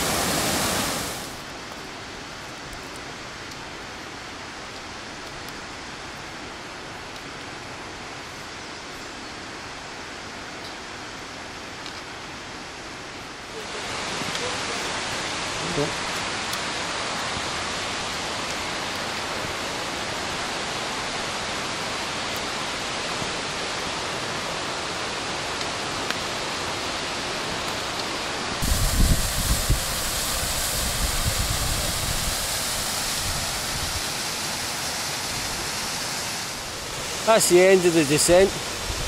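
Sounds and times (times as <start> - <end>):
waterfall rushing: 0.0 - 2.2, 12.4 - 39.0.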